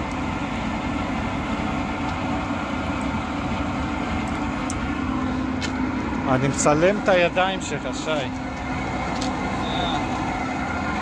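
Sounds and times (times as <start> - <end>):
machine rumble: 0.0 - 11.0.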